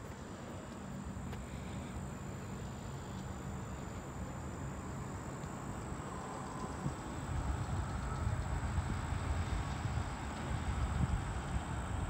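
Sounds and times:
insects trilling: 0:00.9 - 0:12.0.

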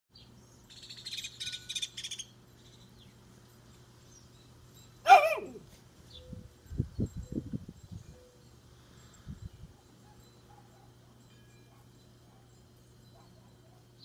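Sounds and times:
bird chirping rapidly: 0:00.2 - 0:03.2
dog bark: 0:05.1 - 0:05.6, 0:10.0 - 0:11.0, 0:13.2 - 0:13.9.

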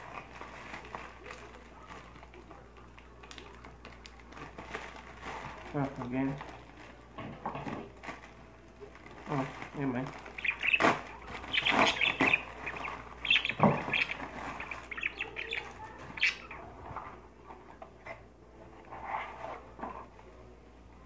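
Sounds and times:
packaging crinkling: 0:00.0 - 0:07.1, 0:07.8 - 0:15.8.

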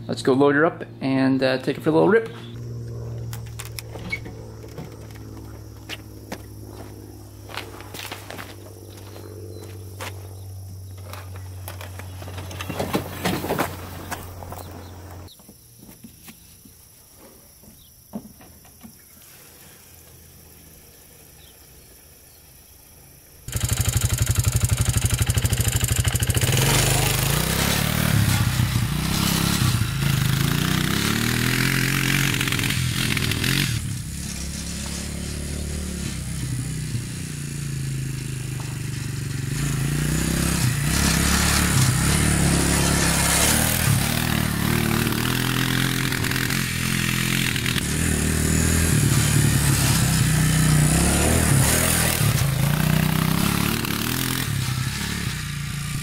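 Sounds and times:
quad bike engine revving: 0:00.0 - 0:10.4, 0:23.5 - 0:56.0
knocks on wooden ramps: 0:17.6 - 0:19.0.

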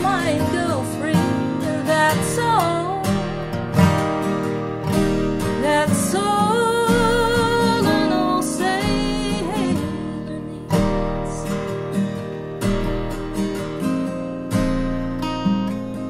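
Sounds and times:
woman singing: 0:00.0 - 0:03.6, 0:05.4 - 0:11.6
acoustic guitars picked and strummed: 0:00.0 - 0:16.0.

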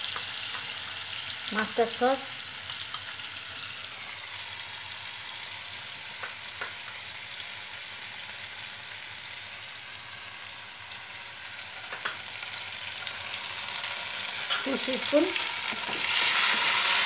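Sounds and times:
seeds sizzling in hot oil: 0:00.0 - 0:17.0.

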